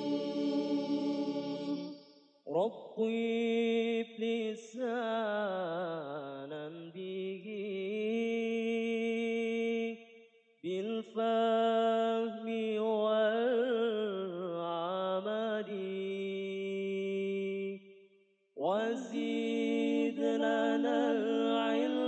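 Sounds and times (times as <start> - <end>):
solo voice melodic recitation: 0.0 - 9.9, 18.6 - 22.0.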